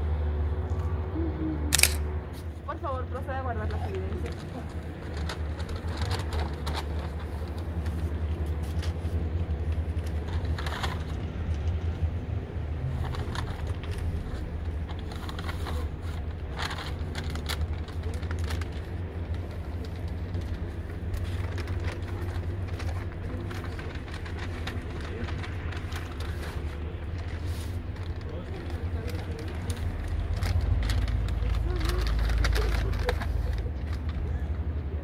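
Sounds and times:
paper bags rustling: 3.2 - 11.9, 12.7 - 34.5
plastic bag handled: 12.9 - 34.2.

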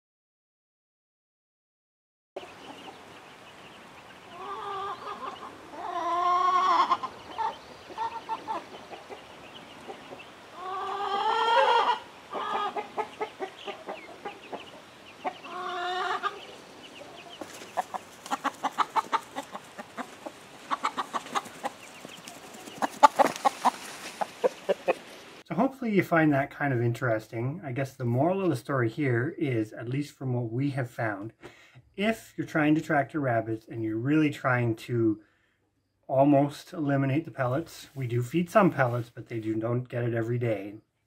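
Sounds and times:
chickens calling: 2.4 - 25.4
chickens clucking: 2.4 - 25.4.

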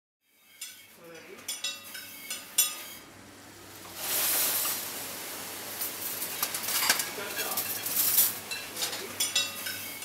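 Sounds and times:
dishes and cutlery clinking: 0.4 - 3.0, 6.4 - 10.0.

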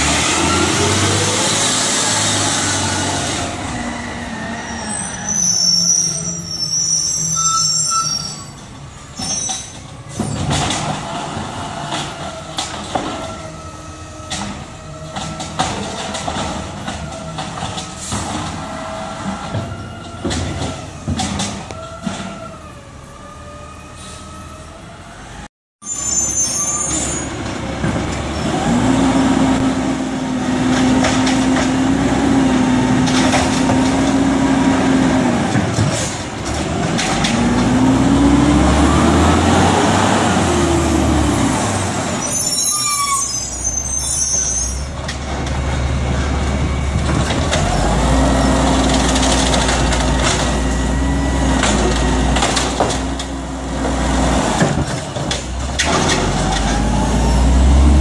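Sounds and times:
garbage truck engine revving: 0.0 - 5.5, 27.4 - 42.4, 45.0 - 58.0.

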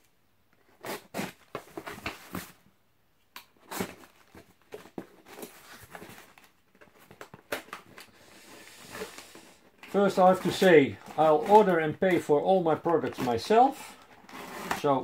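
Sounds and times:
cardboard box being opened: 3.6 - 15.0.

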